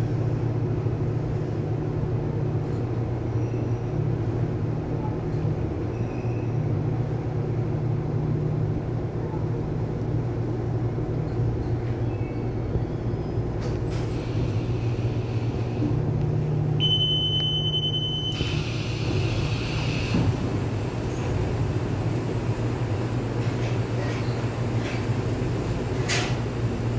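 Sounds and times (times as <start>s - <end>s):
steady high tone: 16.8s - 18.8s.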